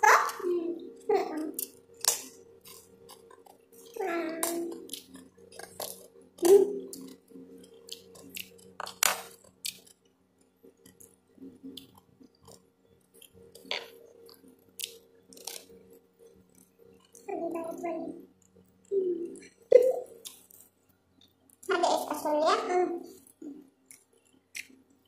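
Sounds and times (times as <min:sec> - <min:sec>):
chewing and lip smacks: 0:01.6 - 0:17.3, 0:23.2 - 0:25.0.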